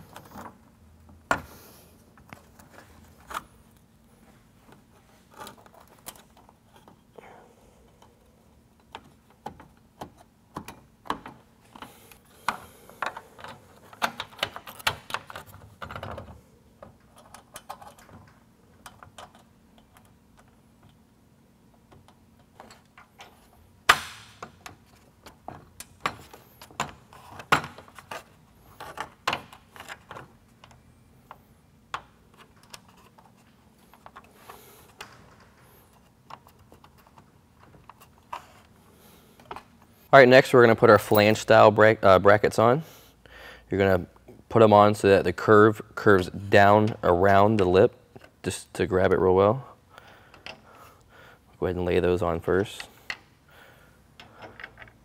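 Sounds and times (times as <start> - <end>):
metal brackets and nuts rattling: 40.8 - 41.7.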